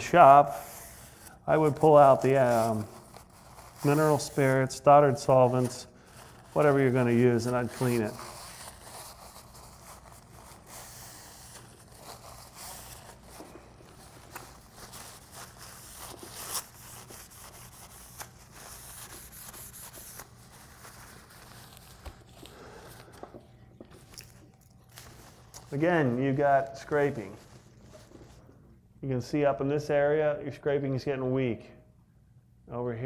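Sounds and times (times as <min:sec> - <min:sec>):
paper towel rubbing on metal: 0:00.0 - 0:22.8, 0:24.9 - 0:28.4.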